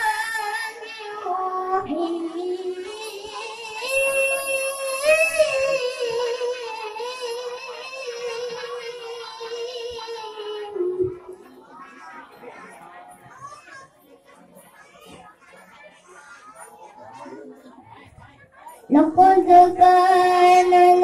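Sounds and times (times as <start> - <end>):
child reciting melodically: 0.0 - 12.6, 18.9 - 21.0.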